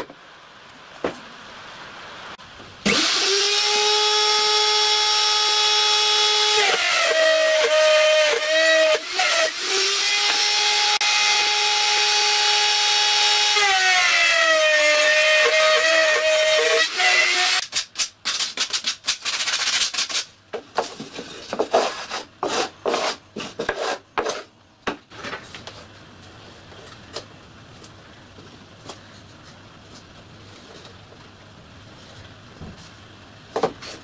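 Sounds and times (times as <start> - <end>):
router whining: 2.8 - 17.6
hand-sanding wood edges: 21.5 - 24.5.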